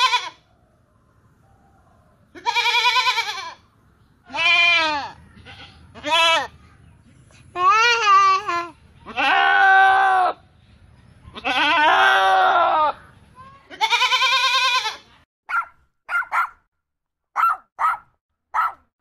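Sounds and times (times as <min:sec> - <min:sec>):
goat bleating: 0:00.0 - 0:00.4, 0:02.4 - 0:03.6, 0:04.3 - 0:06.5, 0:09.0 - 0:10.4, 0:11.3 - 0:13.0, 0:13.7 - 0:15.1
puppy yipping: 0:15.5 - 0:16.6, 0:17.4 - 0:18.8.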